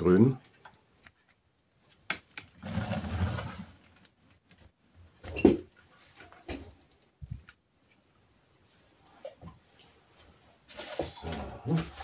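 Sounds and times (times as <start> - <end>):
scraping rustle: 2.6 - 3.8.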